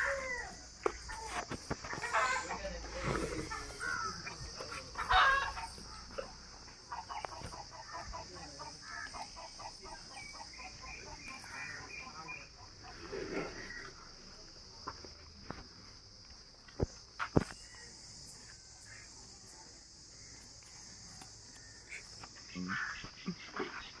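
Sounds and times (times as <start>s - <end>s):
chickens clucking: 0.8s - 14.0s.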